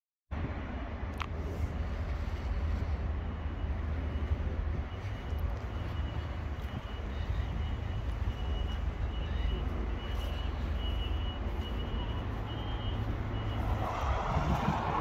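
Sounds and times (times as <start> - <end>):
steady low rumble: 0.3 - 15.0
faint electronic beeps: 2.4 - 14.9.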